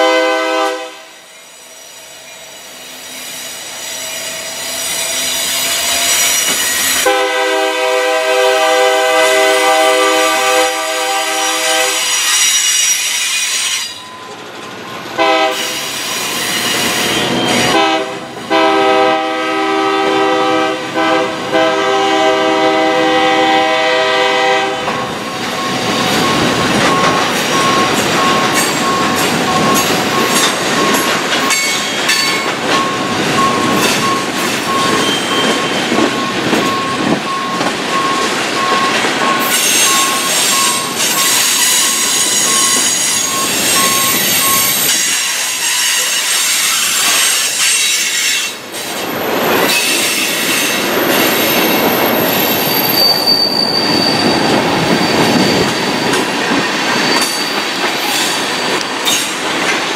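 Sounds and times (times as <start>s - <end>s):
locomotive air horn blasts: 0.0s - 1.2s, 7.0s - 12.3s, 15.2s - 15.8s, 17.7s - 25.0s
steel wheels squealing on rails: 0.0s - 59.9s.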